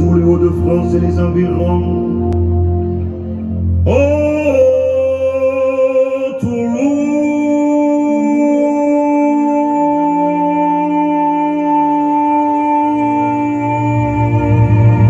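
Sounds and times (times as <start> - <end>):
man singing long wordless notes: 0.0 - 15.0.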